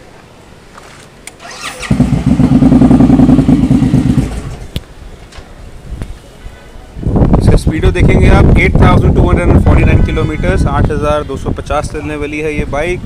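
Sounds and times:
engine starter whine: 1.3s - 4.7s
motorcycle engine running: 1.6s - 4.7s.

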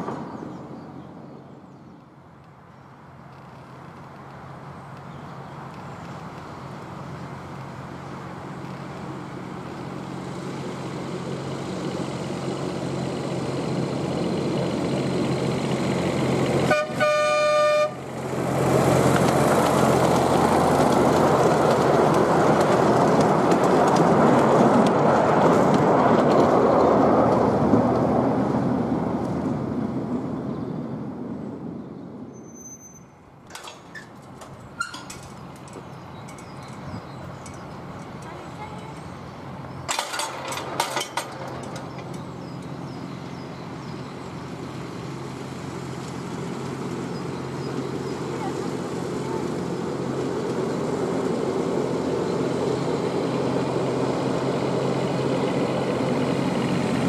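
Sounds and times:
miniature locomotive running: 10.6s - 27.0s
locomotive horn blast: 16.6s - 18.2s.

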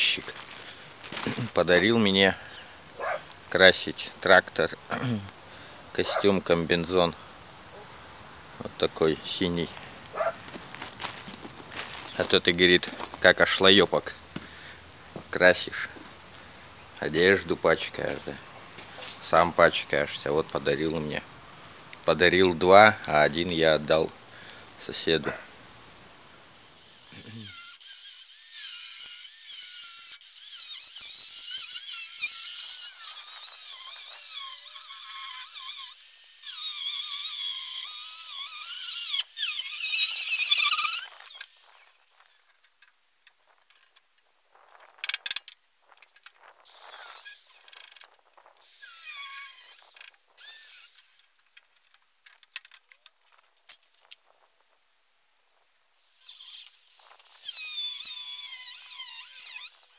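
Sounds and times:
angle grinder cutting sheet metal: 26.6s - 42.5s, 56.0s - 59.9s.

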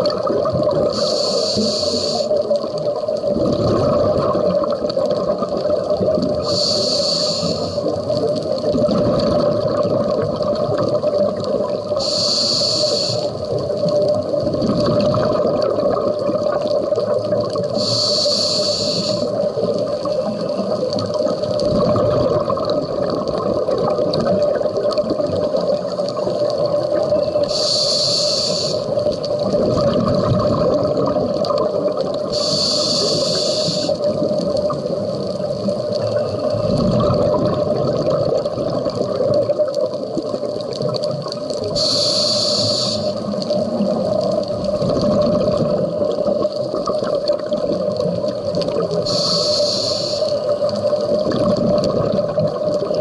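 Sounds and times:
exhaled air bubbling: 0.0s - 53.0s
steady underwater hum: 0.0s - 53.0s
regulator inhalation hiss: 0.8s - 2.4s, 6.4s - 8.0s, 11.9s - 13.6s, 17.7s - 19.6s, 27.4s - 29.0s, 32.2s - 34.2s, 41.7s - 43.4s, 49.0s - 50.7s.

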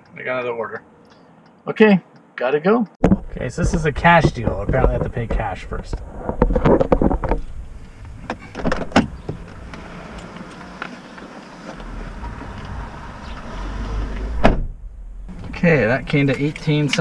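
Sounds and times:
clicks and knocks inside car: 3.0s - 7.5s
car engine low rumble: 3.3s - 17.0s.

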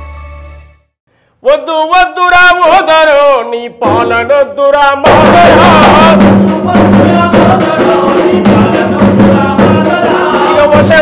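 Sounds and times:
steady drum beat: 3.8s - 4.4s, 5.0s - 11.0s.

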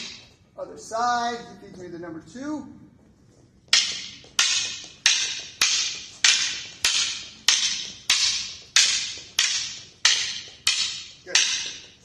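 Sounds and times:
wooden sticks clacking: 0.0s - 0.4s, 3.6s - 12.0s.

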